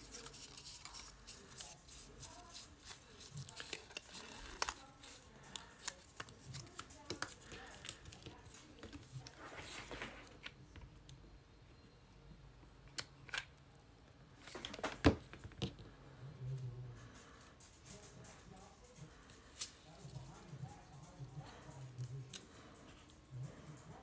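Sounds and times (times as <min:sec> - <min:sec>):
card stock crackling: 0:00.0 - 0:10.5
paper rustle: 0:00.0 - 0:10.5.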